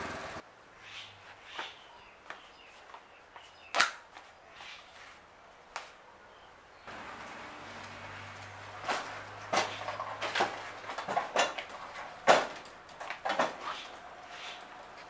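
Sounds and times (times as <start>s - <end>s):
scooter knocking and rattling: 6.9s - 15.0s.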